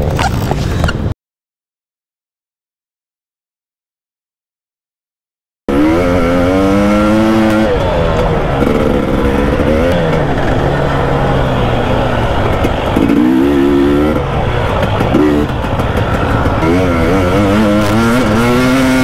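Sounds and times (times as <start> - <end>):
dirt bike engine revving: 5.7 - 19.0.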